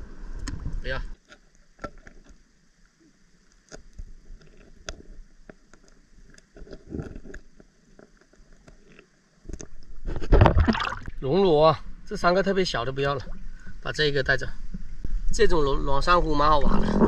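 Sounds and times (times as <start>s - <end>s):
water sloshing against rocks: 3.6s - 11.5s.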